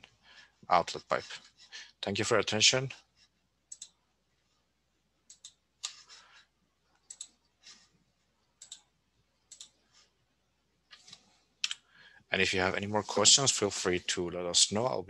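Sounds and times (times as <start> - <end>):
computer mouse clicks: 3.7 - 4.0, 5.2 - 6.1, 7.0 - 7.4, 8.6 - 8.9, 9.5 - 9.8.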